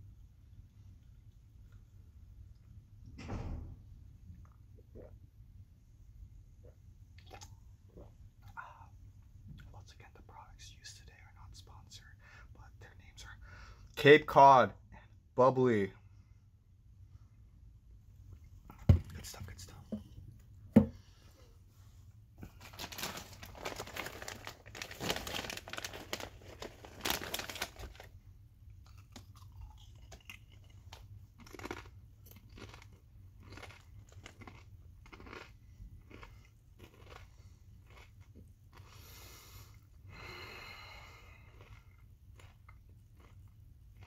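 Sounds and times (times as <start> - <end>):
chip bag crinkling: 22.4 - 28.1, 28.9 - 35.4
crunching chews of chips: 28.7 - 39.8, 41.0 - 44.0.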